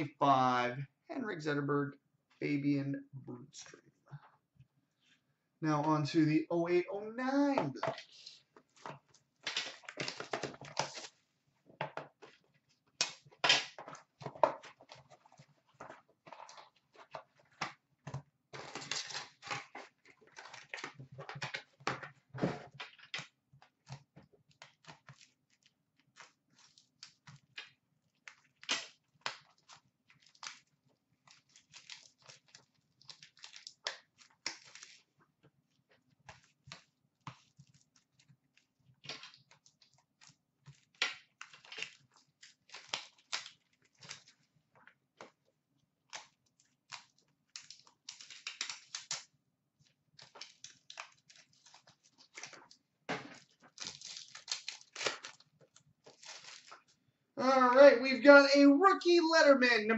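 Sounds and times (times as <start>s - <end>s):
plastic packaging crinkling and tearing: 8.8s - 11.2s, 18.6s - 21.7s, 24.5s - 35.8s, 36.4s - 44.5s, 46.0s - 57.0s.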